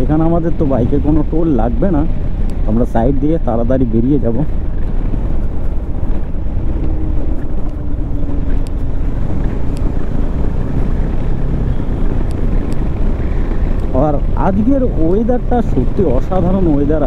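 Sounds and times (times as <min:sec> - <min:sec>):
wind rushing over microphone: 0:00.0 - 0:17.0
motorcycle engine running: 0:04.5 - 0:17.0.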